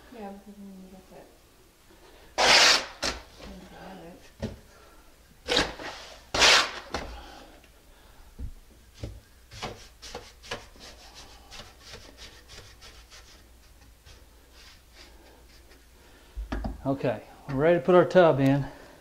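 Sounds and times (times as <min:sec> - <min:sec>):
trowel scraping mortar: 0:02.4 - 0:03.2.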